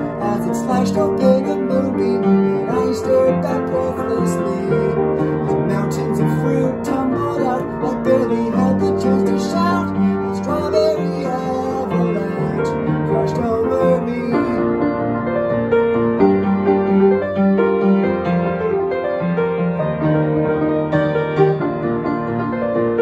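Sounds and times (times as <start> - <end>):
man singing: 0.0 - 14.8
upright piano playing: 0.0 - 23.0.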